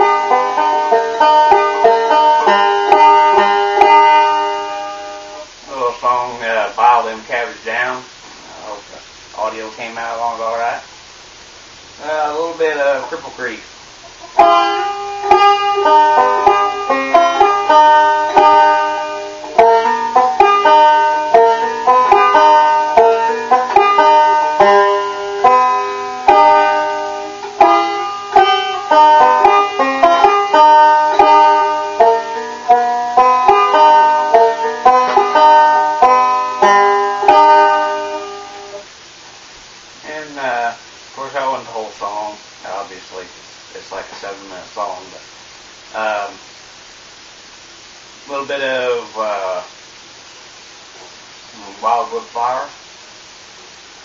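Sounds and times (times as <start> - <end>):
banjo picking: 0.0 - 7.4, 12.0 - 38.9.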